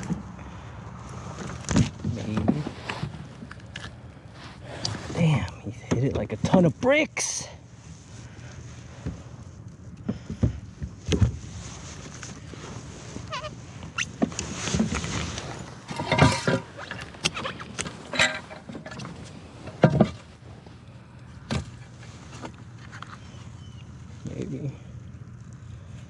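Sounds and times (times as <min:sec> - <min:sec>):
short squeaks: 0:13.1 - 0:14.4, 0:15.2 - 0:19.2.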